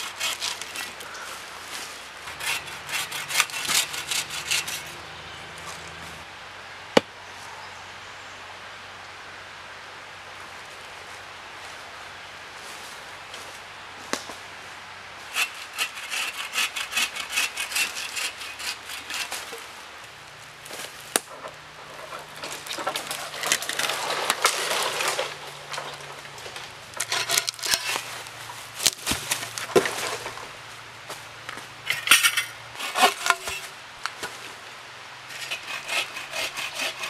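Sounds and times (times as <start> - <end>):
hand saw cutting wood: 0.0 - 1.1, 2.3 - 5.0, 15.3 - 19.7, 27.0 - 28.2, 31.9 - 33.7, 35.3 - 37.0
wood cracking: 20.7 - 30.6.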